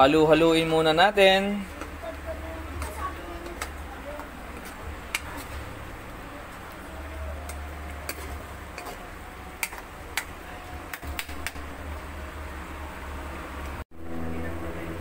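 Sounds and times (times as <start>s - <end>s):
low hum: 1.7s - 15.0s
spoon stirring stew in pan: 7.4s - 11.9s.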